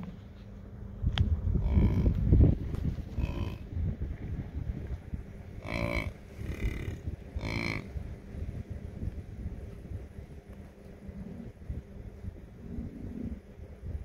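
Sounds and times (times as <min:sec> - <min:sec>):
loud low rumbling: 0:00.0 - 0:14.0
bison calling: 0:01.6 - 0:02.2, 0:03.1 - 0:03.7, 0:05.6 - 0:07.9.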